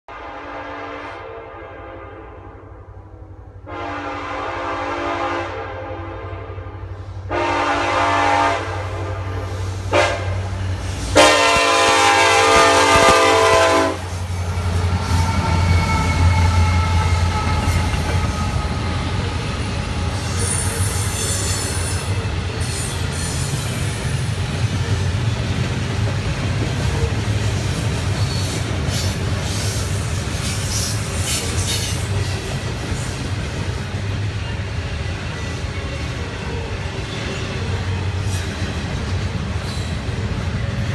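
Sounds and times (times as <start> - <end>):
locomotive chime horn blowing: 0.1 - 2.7, 3.6 - 10.5, 11.2 - 14.1
diesel locomotive engines rumbling: 0.1 - 40.9.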